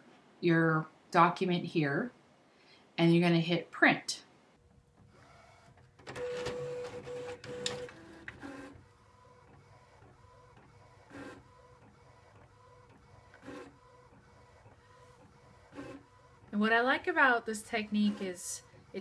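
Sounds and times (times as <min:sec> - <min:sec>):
inkjet printer whirring: 0:05.0 - 0:19.0
printer whine: 0:05.2 - 0:16.6
printer clicks: 0:06.0 - 0:08.6.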